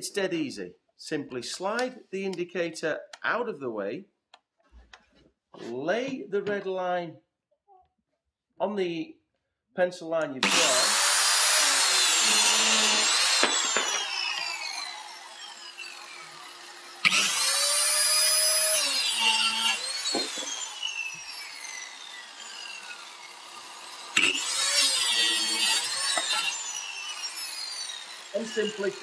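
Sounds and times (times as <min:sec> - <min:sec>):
circular saw cutting wood: 0:10.4 - 0:29.0
saw blade whining down: 0:10.4 - 0:29.0.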